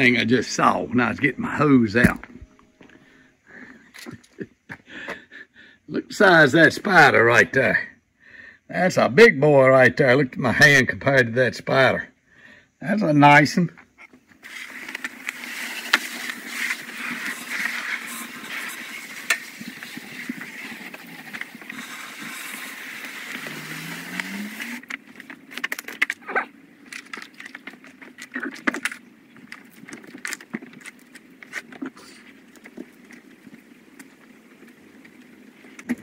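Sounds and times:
garden hose spraying water: 0:14.4 - 0:24.9.

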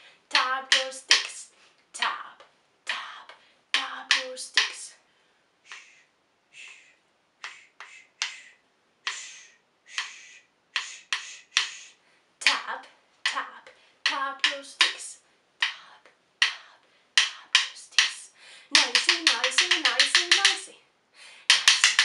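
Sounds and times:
wooden sticks tapped together: 0:00.4 - 0:01.4, 0:03.7 - 0:04.8, 0:10.8 - 0:11.8, 0:14.0 - 0:15.8, 0:16.4 - 0:18.2, 0:18.8 - 0:20.7, 0:21.5 - 0:22.0.

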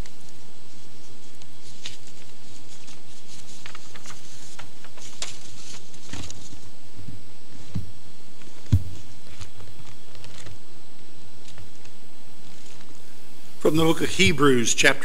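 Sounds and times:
steady hiss: 0:00.0 - 0:15.0
dull thumps: 0:08.6 - 0:09.1.

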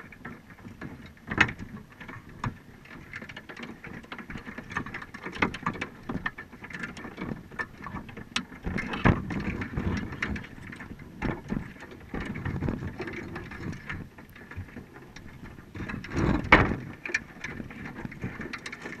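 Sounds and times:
underwater low rumbling: 0:07.0 - 0:19.0.

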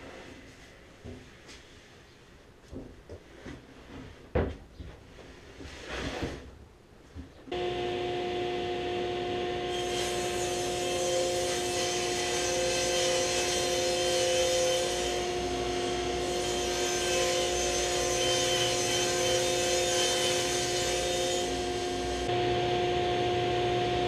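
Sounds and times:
table saw running: 0:07.5 - 0:24.0.

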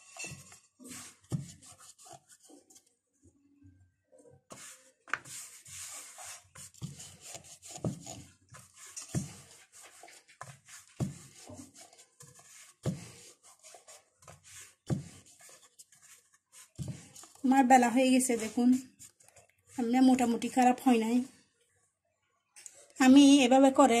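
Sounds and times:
rolling pin scraping dough: 0:00.0 - 0:02.7, 0:04.5 - 0:20.7.

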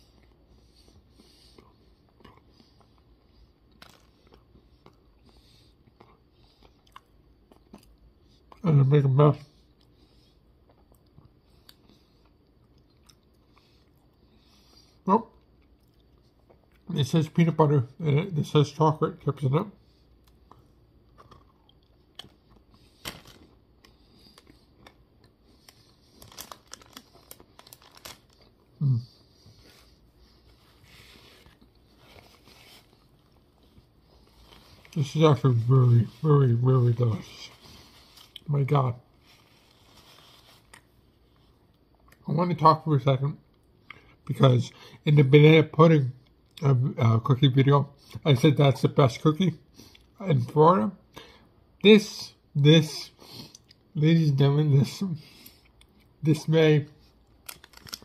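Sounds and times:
closed-mouth chewing: 0:00.1 - 0:08.6, 0:09.6 - 0:16.9
chewing cookie mouth sounds: 0:01.6 - 0:08.6, 0:10.6 - 0:14.2, 0:20.1 - 0:29.8, 0:57.2 - 0:58.0.

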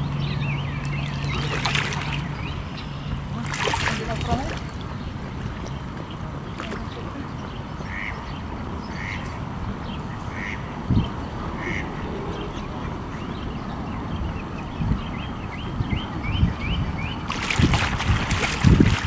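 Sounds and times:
duck quacking: 0:11.6 - 0:12.0.

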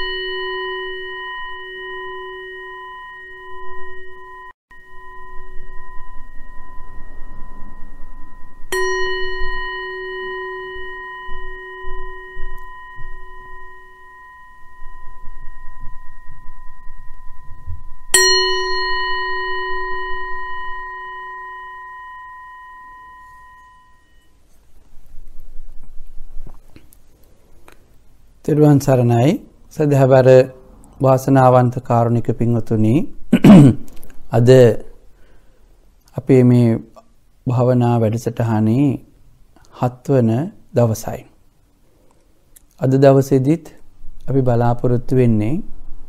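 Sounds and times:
meditation bell ringing: 0:00.0 - 0:24.6.

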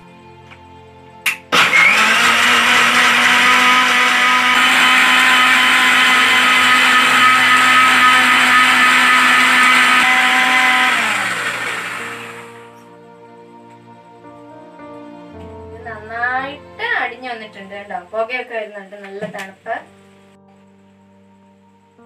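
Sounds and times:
mixer grinder motor blending ice: 0:01.5 - 0:12.8.

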